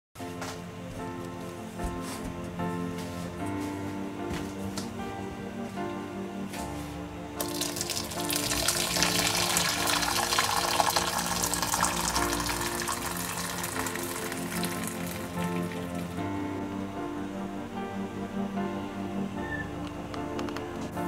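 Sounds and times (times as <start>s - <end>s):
background music: 0.2s - 21.0s
water pouring into a metal pot: 7.4s - 16.1s.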